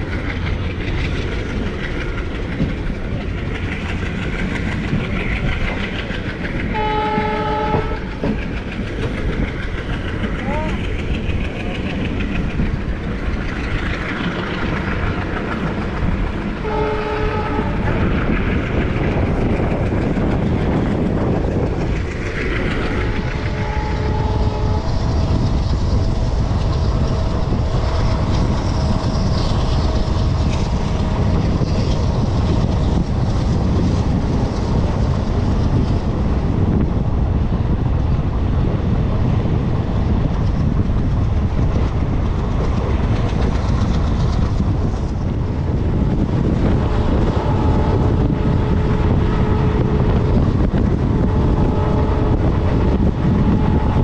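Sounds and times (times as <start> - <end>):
train rumble and rail clatter: 0.0 - 54.0
train horn blasts: 6.7 - 8.3, 16.6 - 18.0, 23.1 - 25.4, 46.7 - 54.0.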